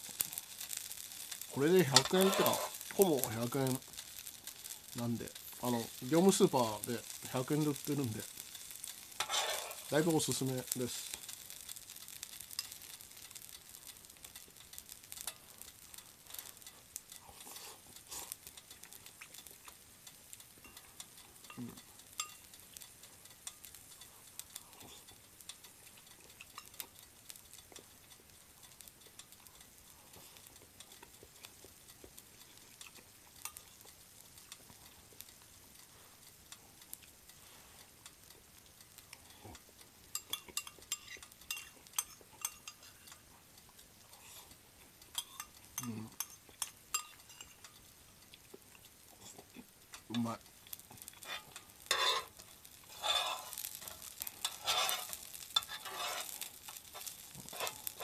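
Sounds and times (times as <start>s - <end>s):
food sizzling on hot plate: 0.0s - 58.0s.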